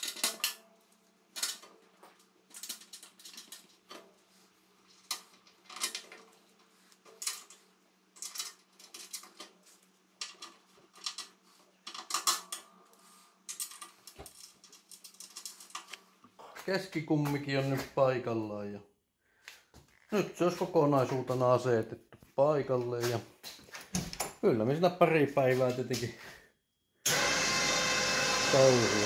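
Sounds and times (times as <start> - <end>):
metallic clinks and scrapes of tools: 0.0 - 16.7.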